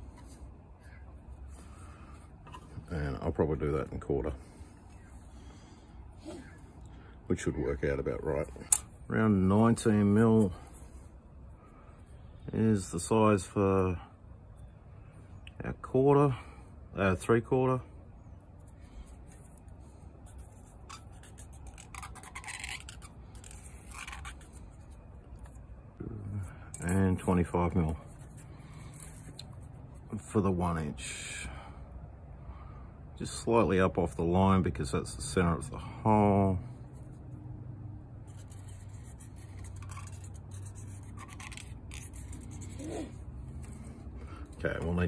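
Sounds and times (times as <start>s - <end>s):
marker scratching on steel: 18.6s - 25.6s, 38.2s - 44.9s.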